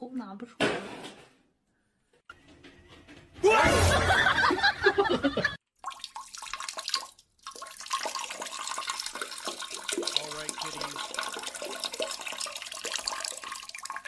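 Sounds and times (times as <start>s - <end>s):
loud vocal burst: 3.4s - 4.4s
water running in toilet bowl: 5.7s - 14.0s.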